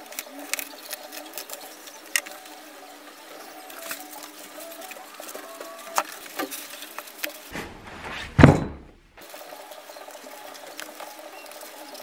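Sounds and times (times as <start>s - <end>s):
soft heavy thud: 7.5s - 9.0s.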